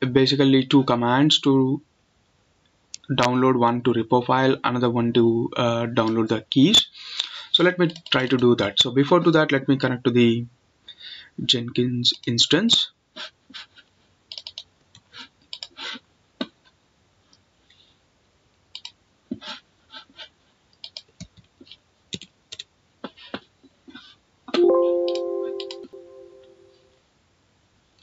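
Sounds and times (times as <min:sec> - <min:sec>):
computer mouse clicks: 0:14.3 - 0:15.8, 0:18.7 - 0:19.0, 0:20.7 - 0:22.7
alert chime: 0:24.6 - 0:26.8.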